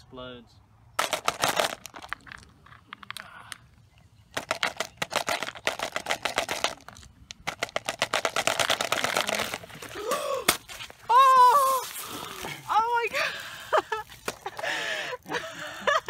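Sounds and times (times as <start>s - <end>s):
candies rattling in plastic tube: 1.0s - 2.5s, 4.4s - 10.0s
man crying out: 9.9s - 10.5s, 11.1s - 12.6s.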